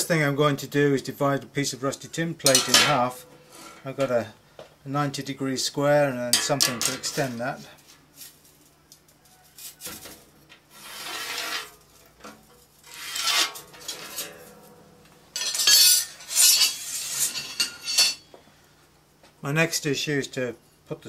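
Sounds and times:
steel rule clinking on plate: 2.5 - 3.1, 6.4 - 7.4, 15.4 - 18.2
metal scribe scraping tin plate: 6.3 - 7.6, 9.6 - 18.2.

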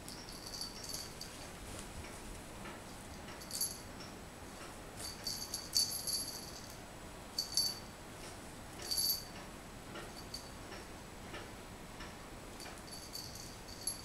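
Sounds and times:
small bell jingling: 0.0 - 1.6, 3.4 - 3.9, 5.0 - 6.8, 7.4 - 7.9, 8.8 - 9.4, 10.1 - 10.6, 12.6 - 14.0.

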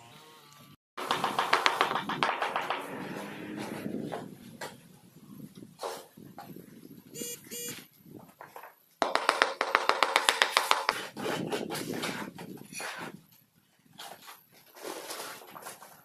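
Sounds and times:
mallet knocking tile: 9.0 - 11.0
mortar scraped in plastic bucket: 14.0 - 16.0.

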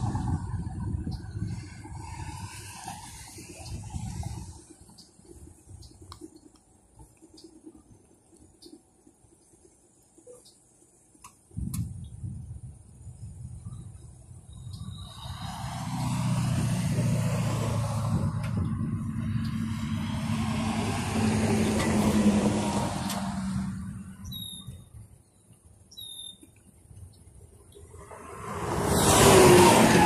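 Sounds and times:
vehicle passing by: 0.0 - 4.9, 14.8 - 24.2, 27.9 - 30.0
short high chirps: 24.2 - 24.9.

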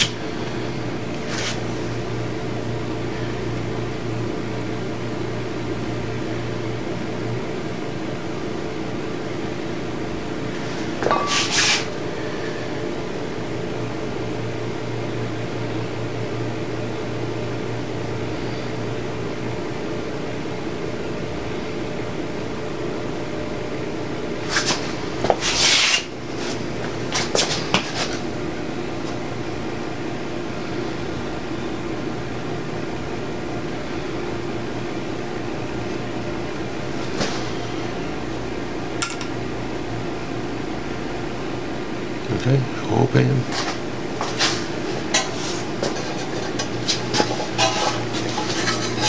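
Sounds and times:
electric fan whirring hum: 0.0 - 49.0
hand tools clicking and clattering: 39.0 - 39.3, 45.1 - 49.0.

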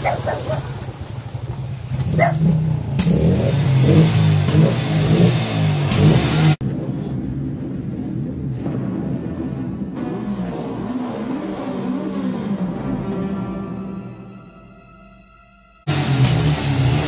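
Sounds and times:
motorcycle engines in film soundtrack: 0.0 - 17.0
quad bike engine revving: 1.8 - 6.6, 15.9 - 17.0.

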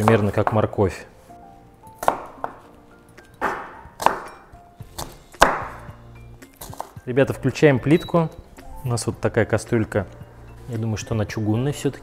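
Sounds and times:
quiet background music: 0.0 - 12.0
knife chopping onion on board: 2.0 - 2.6, 3.4 - 6.0.

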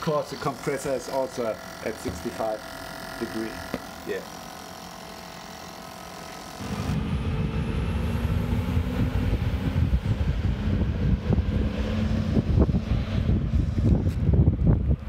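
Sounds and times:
steady machine hum: 0.0 - 15.0
wind buffeting microphone: 6.9 - 15.0.

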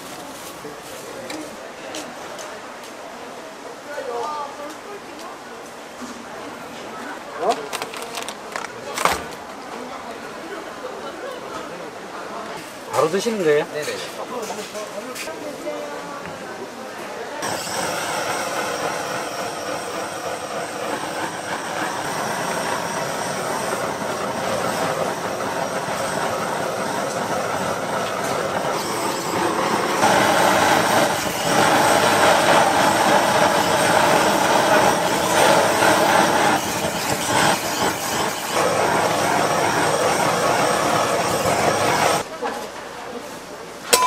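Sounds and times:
butane torch hissing: 17.4 - 42.2.

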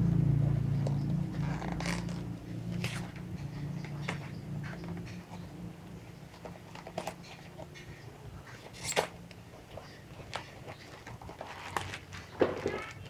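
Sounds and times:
paper and card crinkling: 8.5 - 13.0.

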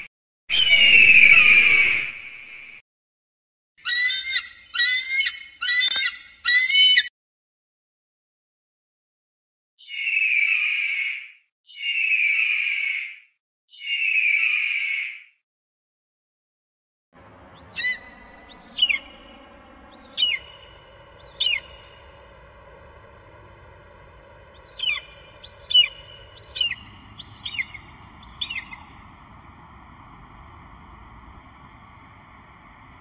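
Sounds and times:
faint steady hiss: 17.2 - 33.0.

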